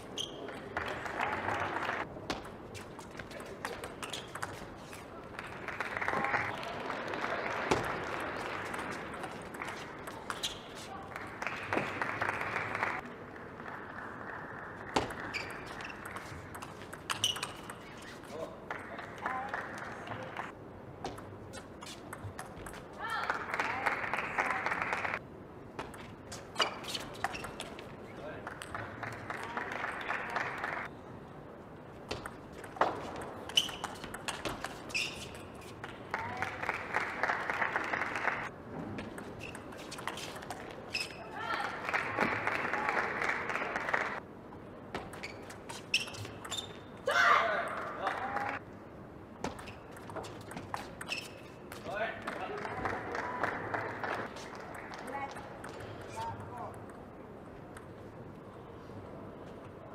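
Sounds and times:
shoe squeaks: 0:00.0 - 0:00.6, 0:10.3 - 0:10.9, 0:15.3 - 0:16.4, 0:17.1 - 0:18.4, 0:26.3 - 0:27.7, 0:33.4 - 0:35.7, 0:39.4 - 0:41.3, 0:45.0 - 0:47.0, 0:49.5 - 0:51.8
quiet arena hum: 0:00.0 - 0:59.9
applause: 0:00.6 - 0:02.1, 0:05.2 - 0:10.3, 0:10.9 - 0:15.3, 0:18.6 - 0:20.5, 0:23.1 - 0:25.2, 0:28.3 - 0:30.9, 0:36.0 - 0:38.5, 0:41.4 - 0:44.2, 0:48.0 - 0:48.6, 0:51.9 - 0:55.3
table tennis ball bouncing: 0:14.9 - 0:18.0, 0:32.1 - 0:35.5, 0:45.0 - 0:46.8, 0:49.4 - 0:51.4.

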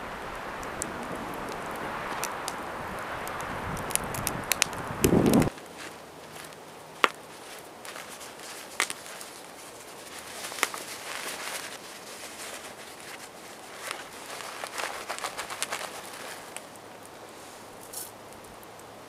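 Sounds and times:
cloth pouch rustling: 0:05.5 - 0:18.1.

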